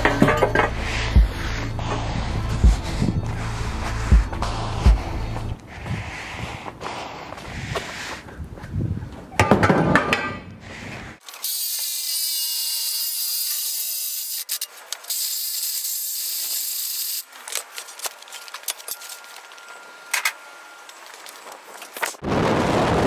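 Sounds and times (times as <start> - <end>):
power saw cutting metal pipe: 11.2 - 17.3.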